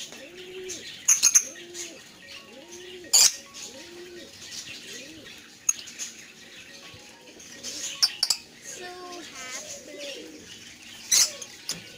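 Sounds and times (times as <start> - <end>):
birds chirping shrilly: 0.0 - 11.9.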